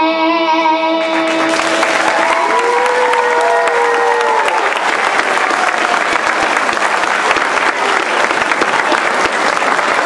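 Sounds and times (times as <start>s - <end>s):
audience applauding: 1.0s - 10.0s.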